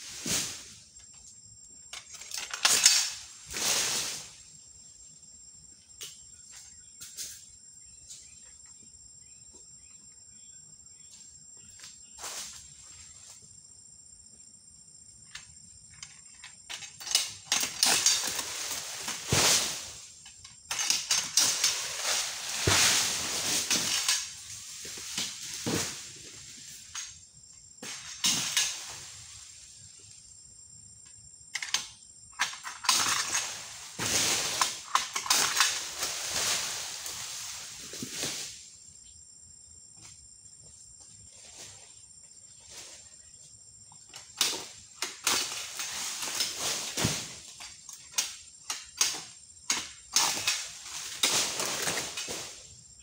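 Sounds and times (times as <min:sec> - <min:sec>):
fronds crashing through leaves: 0:00.0 - 0:00.8, 0:02.6 - 0:04.4, 0:17.5 - 0:20.2, 0:20.8 - 0:26.8, 0:32.9 - 0:38.7, 0:44.5 - 0:47.7, 0:50.1 - 0:52.8
high insect drone: 0:00.0 - 0:53.0
palm fronds rustling and snapping: 0:02.0 - 0:04.4, 0:16.0 - 0:27.2, 0:27.8 - 0:29.9, 0:32.4 - 0:38.7, 0:44.0 - 0:52.8.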